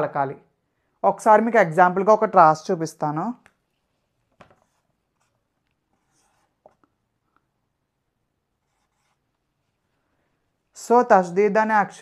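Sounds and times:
marker strokes on whiteboard: 3.6 - 7.3, 8.5 - 10.0.

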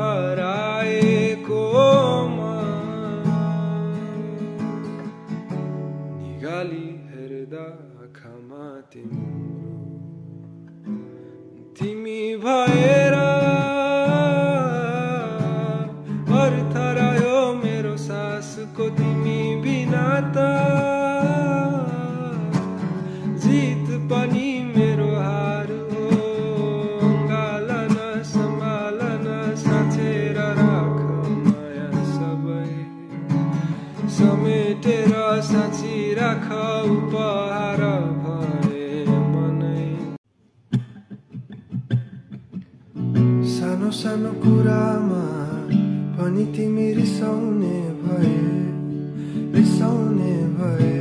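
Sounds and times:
person singing with reverb: 0.0 - 4.5, 6.2 - 9.3, 11.8 - 40.2, 49.6 - 51.0
acoustic guitar playing: 0.0 - 51.0.

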